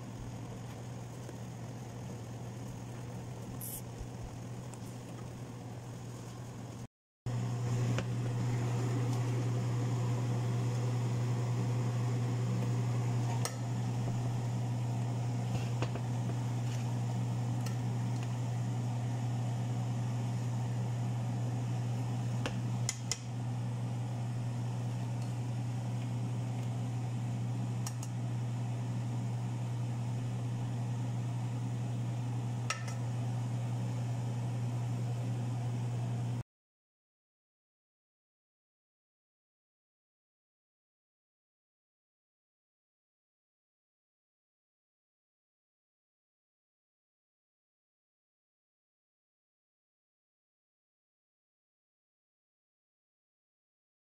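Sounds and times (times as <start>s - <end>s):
steady low hum: 0.0s - 36.4s.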